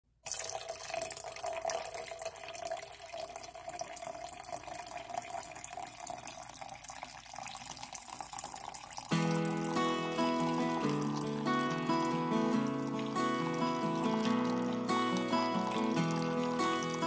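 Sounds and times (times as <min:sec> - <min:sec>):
liquid pouring into metal tumbler: 0:00.2 - 0:17.0.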